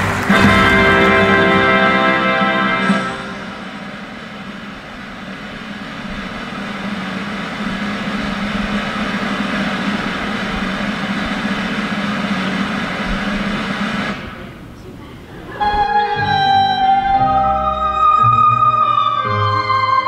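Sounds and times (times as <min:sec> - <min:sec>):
drum roll: 0:00.0 - 0:14.7.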